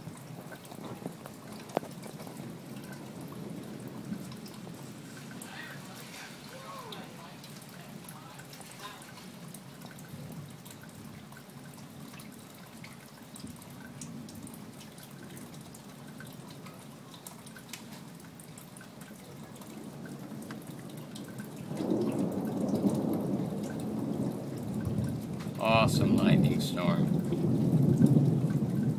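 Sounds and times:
low roll of thunder: 0.0 - 8.2, 19.6 - 28.9
drips falling close by: 0.0 - 28.9
light rain: 0.0 - 28.9.

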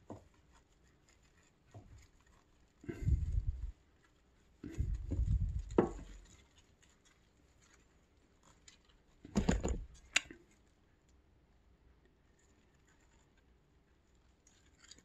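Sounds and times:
muffled thumps and rustling: 2.8 - 3.8, 4.5 - 6.6, 9.1 - 10.2.

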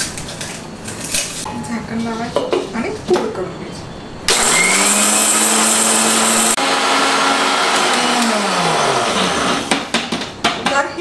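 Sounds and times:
mixer grinder grinding chillies: 4.3 - 9.9.

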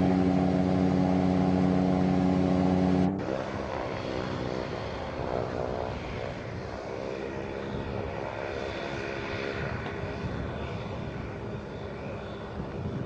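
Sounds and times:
aircraft engine and propeller drone: 0.0 - 13.0.

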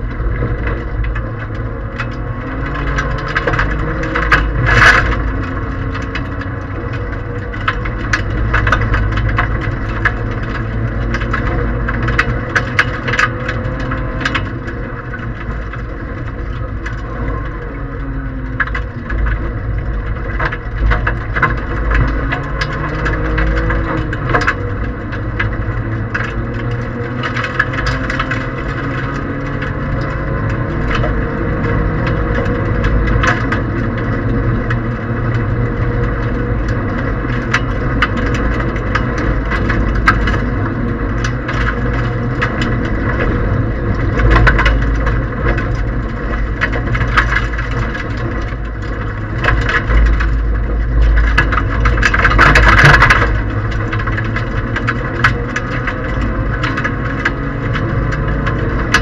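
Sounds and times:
car engine under load: 0.0 - 59.0
stones rattling against underbody: 0.0 - 59.0
tyres rumbling on gravel: 0.0 - 59.0.

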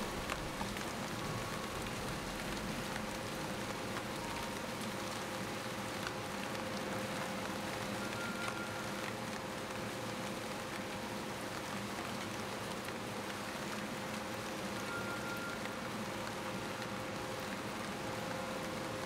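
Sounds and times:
rain hissing: 0.0 - 9.0.

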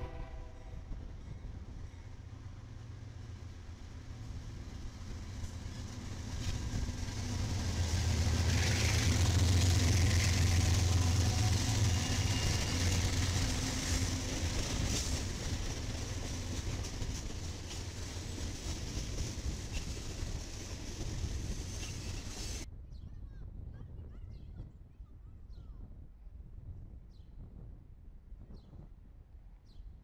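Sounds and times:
diesel locomotive engine rumble: 0.0 - 22.7.

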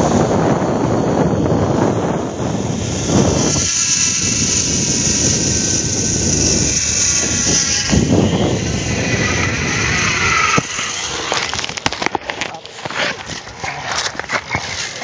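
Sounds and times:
wind rush on microphone: 0.0 - 11.9
zipline pulleys whirring on cable: 0.0 - 15.0.

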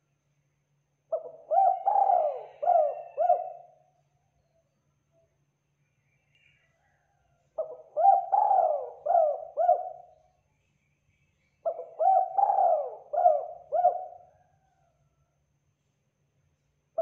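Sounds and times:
dove cooing: 1.1 - 3.8, 7.6 - 10.2, 11.6 - 14.5.

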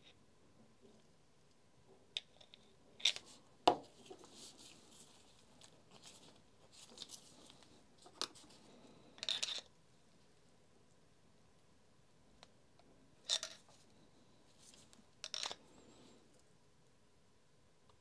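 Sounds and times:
faint handling noise: 2.5 - 10.3, 13.3 - 16.5.

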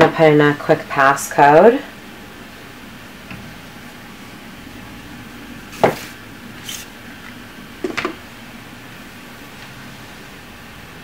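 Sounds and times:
room hiss: 0.0 - 11.0
knock on wooden table: 5.8 - 6.0.

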